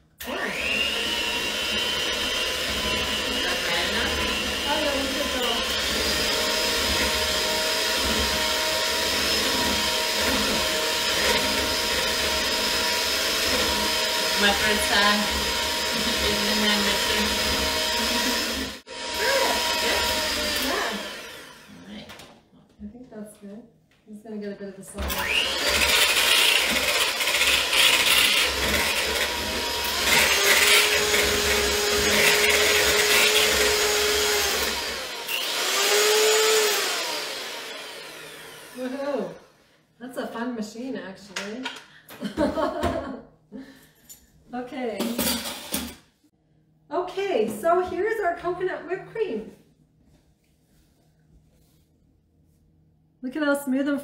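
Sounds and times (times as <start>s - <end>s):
electric hand mixer whirring: 0.1s - 22.1s, 25.0s - 39.7s.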